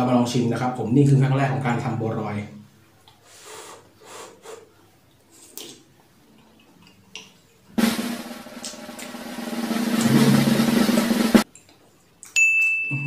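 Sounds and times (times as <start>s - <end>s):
soft puffs of breath blowing: 3.2s - 4.8s
loud music with drum roll: 7.8s - 11.4s.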